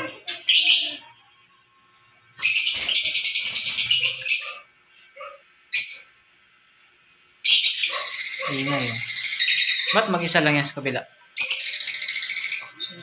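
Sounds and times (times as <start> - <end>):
parrots chattering and screeching: 0.0 - 1.3, 2.4 - 6.2, 7.4 - 10.7, 11.3 - 13.0.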